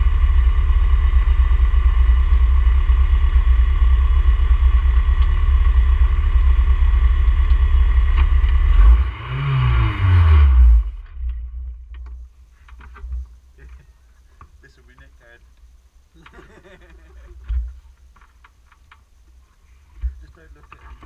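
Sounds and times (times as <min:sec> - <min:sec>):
race car engine drone: 0:00.0 - 0:12.1
faint knocks and rustles: 0:11.1 - 0:21.0.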